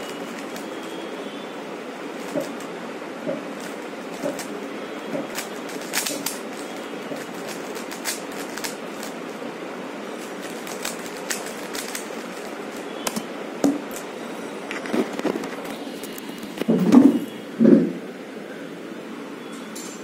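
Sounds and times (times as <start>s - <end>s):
puzzle cube clicking: 5.2s - 6.6s, 7.2s - 9.2s, 10.4s - 12.4s.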